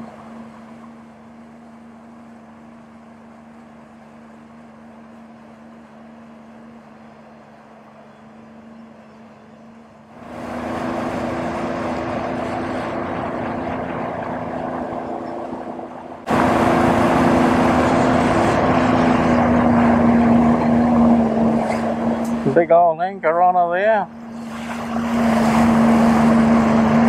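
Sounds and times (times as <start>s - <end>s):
jet ski engine: 0.0s - 27.0s
water rushing past hull: 10.1s - 22.6s, 23.7s - 27.0s.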